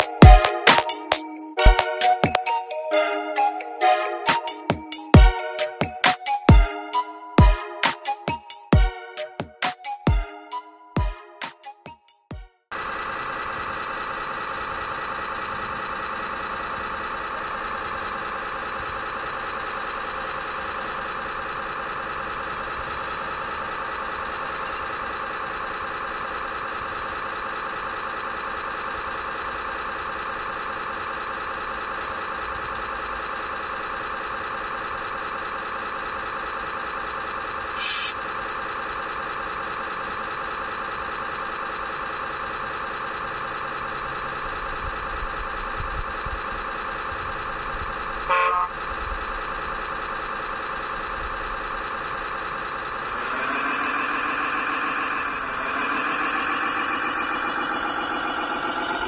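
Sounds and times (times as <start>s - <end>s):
diesel engine sound through speaker: 3.8s - 59.0s
short hiss: 37.8s - 38.2s.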